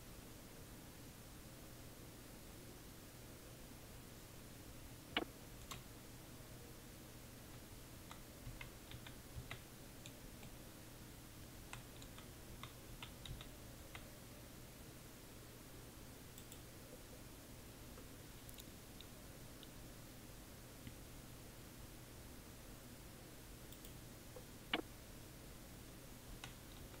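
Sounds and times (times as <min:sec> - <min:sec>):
low steady hum: 0:00.0 - 0:27.0
keystrokes on computer keyboard: 0:05.2 - 0:05.8, 0:08.1 - 0:10.6, 0:11.7 - 0:14.1, 0:16.4 - 0:16.6, 0:26.3 - 0:27.0.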